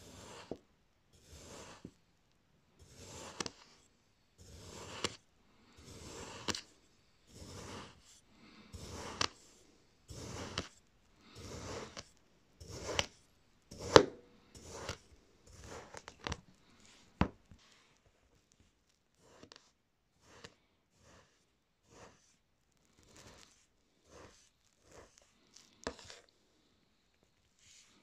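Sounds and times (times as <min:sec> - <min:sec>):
knife slicing through sand: 0:01.2 - 0:01.8, 0:02.8 - 0:03.7, 0:04.4 - 0:05.2, 0:05.8 - 0:06.7, 0:07.3 - 0:08.1, 0:08.7 - 0:09.5, 0:10.1 - 0:10.7, 0:11.4 - 0:12.0, 0:12.6 - 0:16.0.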